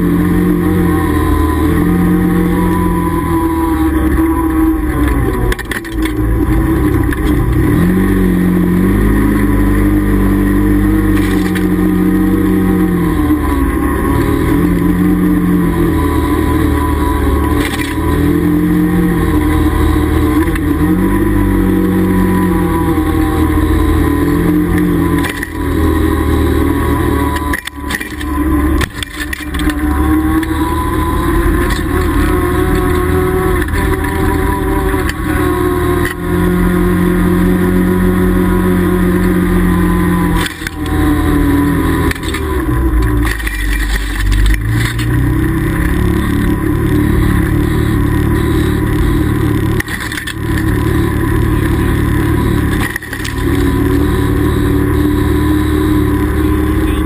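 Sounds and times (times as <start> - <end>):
vehicle engine running: 0.0 - 57.0.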